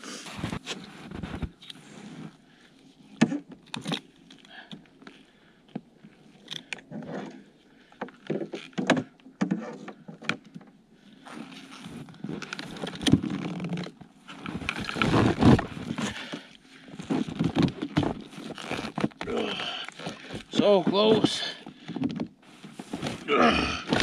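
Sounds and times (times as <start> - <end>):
bungee cords being stretched: 11.2 - 22.0, 22.7 - 24.0.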